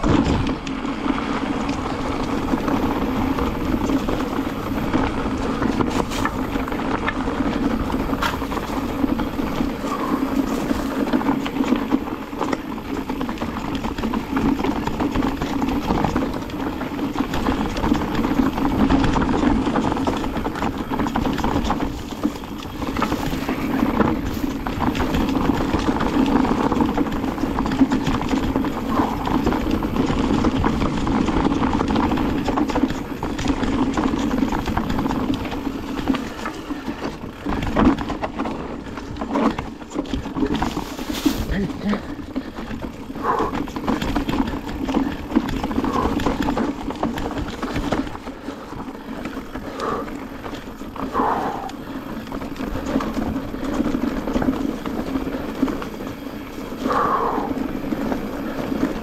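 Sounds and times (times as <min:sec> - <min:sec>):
bike knocking and rattling: 0:00.0 - 0:59.0
bike tyres rumbling over gravel: 0:00.0 - 0:59.0.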